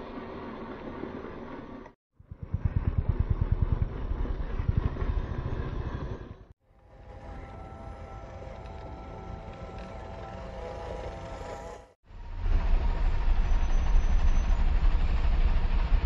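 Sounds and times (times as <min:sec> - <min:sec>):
faint motor whine: 0:06.7 - 0:16.0.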